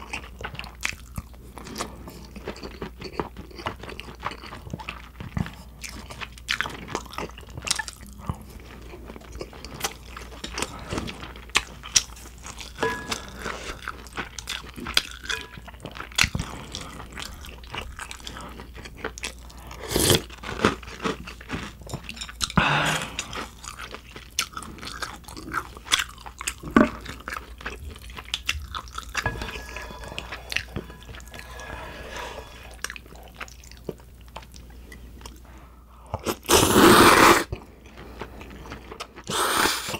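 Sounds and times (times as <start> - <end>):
chewing and biting food: 0.0 - 31.8.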